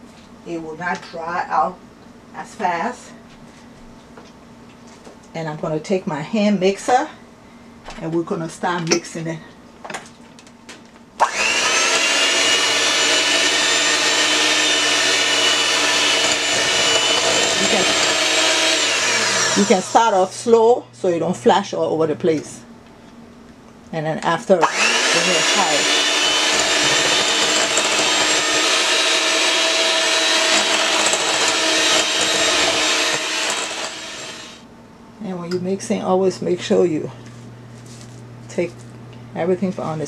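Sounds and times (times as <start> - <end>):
electric hand mixer whining: 11.2 - 20.4, 24.6 - 34.6.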